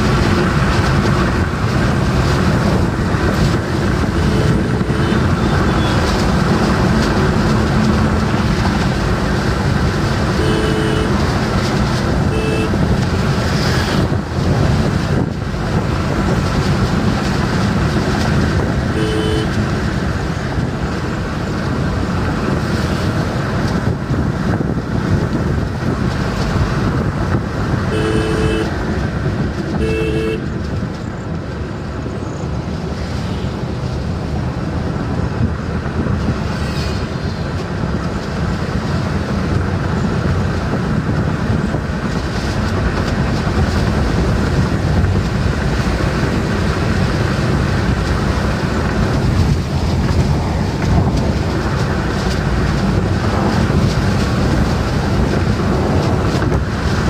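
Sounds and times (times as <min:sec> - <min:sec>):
tyre and wind noise in car: 0:00.0 - 0:57.0
short car horn toots: 0:10.4 - 0:11.2, 0:12.3 - 0:12.8, 0:19.0 - 0:19.6, 0:27.9 - 0:28.8, 0:29.8 - 0:30.4.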